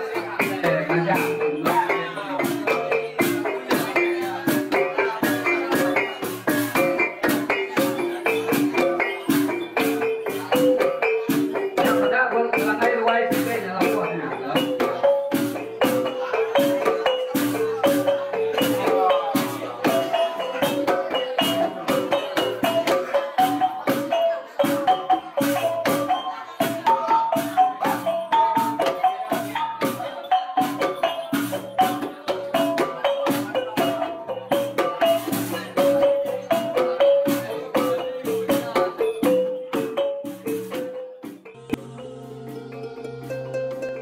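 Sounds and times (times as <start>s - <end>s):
hand drum: 0.0s - 44.0s
kettle gongs playing melody: 41.5s - 44.0s.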